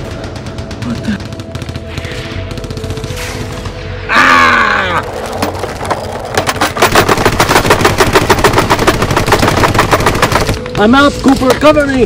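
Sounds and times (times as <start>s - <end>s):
rapid automatic gunfire: 0.0s - 3.2s, 6.7s - 10.6s.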